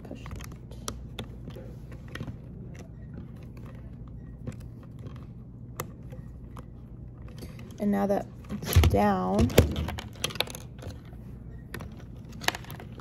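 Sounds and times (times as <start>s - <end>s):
low room hum: 0.0s - 13.0s
plastic parts clicking: 8.4s - 13.0s.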